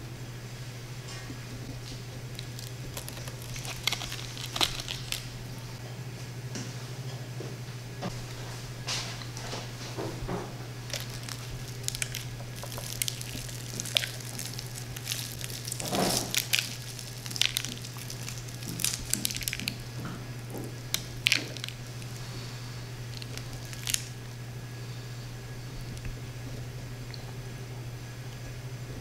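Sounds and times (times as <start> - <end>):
steady low hum: 0.0 - 29.0
fried crust crackling and crunching: 1.8 - 5.8, 10.7 - 24.3.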